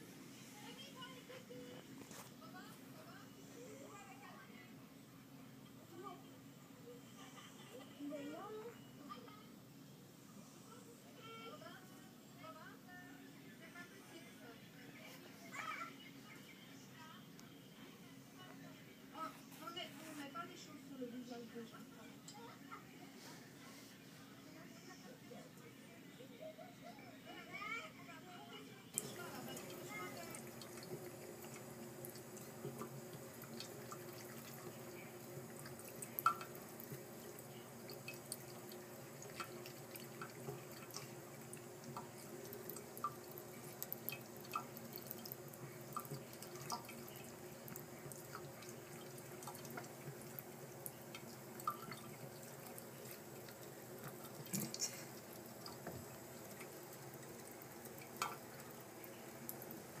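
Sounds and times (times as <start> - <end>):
water dripping into sink: 29.0 - 60.0.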